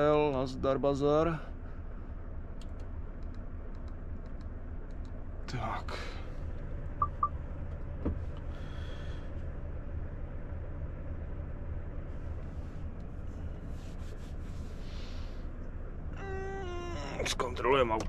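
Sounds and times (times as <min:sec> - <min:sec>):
diesel truck engine idling: 0:00.0 - 0:18.0
short electronic beeps: 0:07.0 - 0:07.3.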